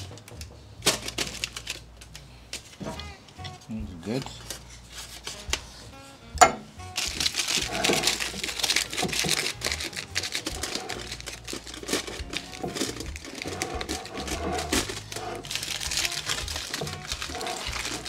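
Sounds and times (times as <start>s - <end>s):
aluminium foil crinkling: 0.9s - 2.8s, 4.2s - 5.6s, 7.0s - 18.0s.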